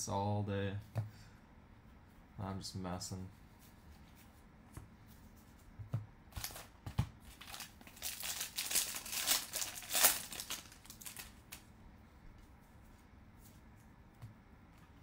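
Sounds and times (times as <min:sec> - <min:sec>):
foil wrapper tearing and crinkling: 0:07.3 - 0:11.6.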